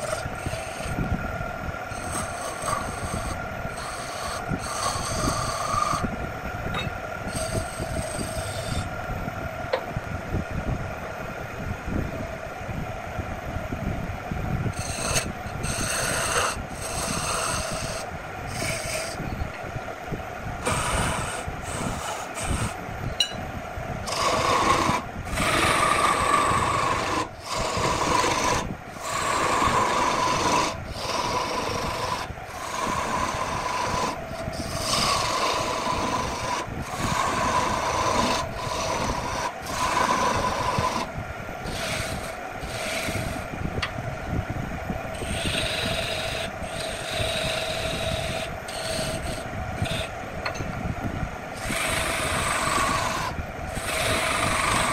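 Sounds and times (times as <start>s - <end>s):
lathe tool scraping wood: 0.0s - 6.1s, 6.8s - 9.0s, 14.7s - 19.5s, 20.6s - 22.8s, 24.0s - 43.6s, 45.1s - 50.6s, 51.5s - 54.9s.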